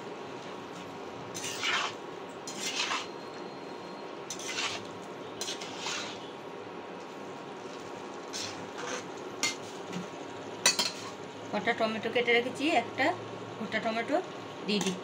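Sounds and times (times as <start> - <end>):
spatula scraping frying pan: 1.3 - 3.2, 4.3 - 6.3, 8.3 - 9.8.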